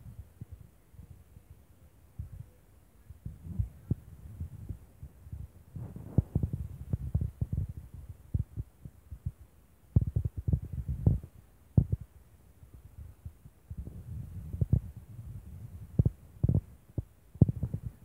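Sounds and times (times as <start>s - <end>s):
low thumps on microphone: 3.2s - 9.4s, 10.0s - 12.1s, 13.0s - 18.0s.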